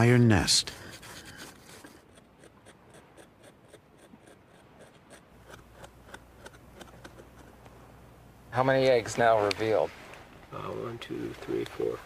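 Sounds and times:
hand tool scraping dirt: 0.8 - 7.6.

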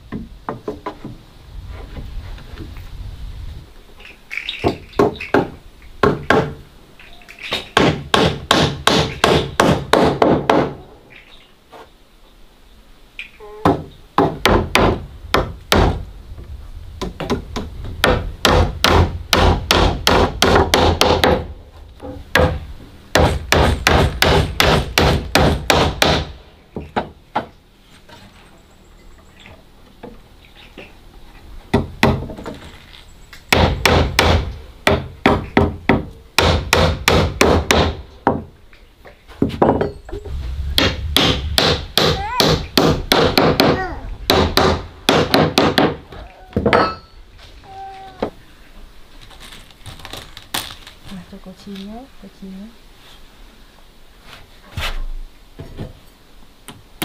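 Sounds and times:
hammer striking nails into wood: 7.5 - 10.8, 13.7 - 16.0, 17.1 - 21.5, 22.3 - 27.5, 31.7 - 32.5, 33.5 - 38.5, 41.6 - 46.0.

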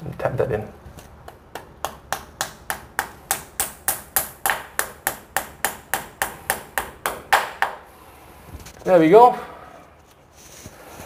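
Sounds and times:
small hammer tapping: 1.2 - 7.8.

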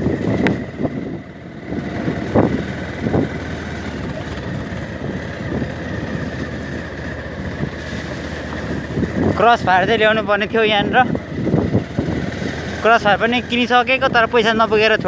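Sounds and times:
motorcycle engine running: 0.0 - 15.0.

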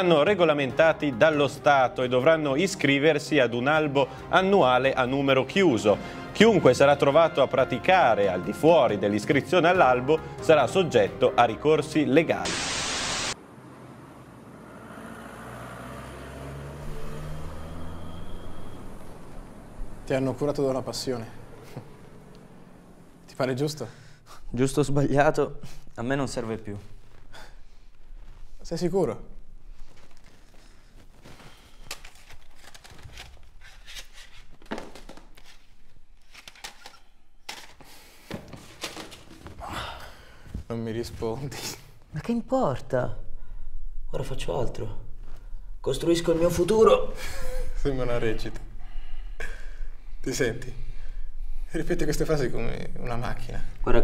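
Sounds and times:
city traffic rumble: 13.3 - 24.3
vehicle engine low hum: 13.4 - 23.5
rustling handling noise: 26.4 - 39.6.

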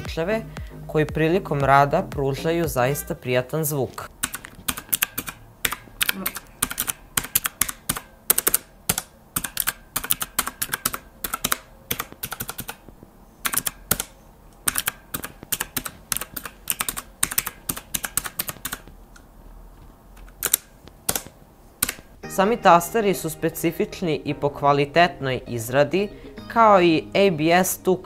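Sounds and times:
mechanical keyboard key clicks: 4.2 - 12.9, 13.5 - 18.9, 20.2 - 22.1.

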